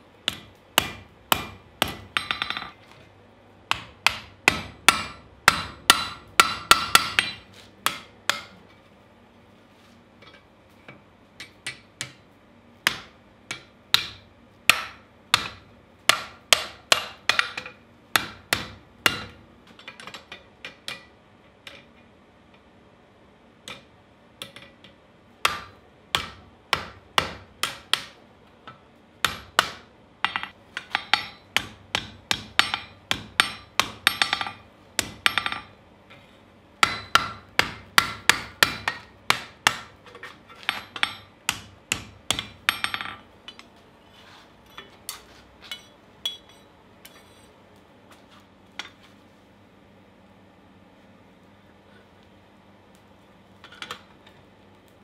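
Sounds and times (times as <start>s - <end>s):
hammer ringing on anvil: 45.7s - 47.4s.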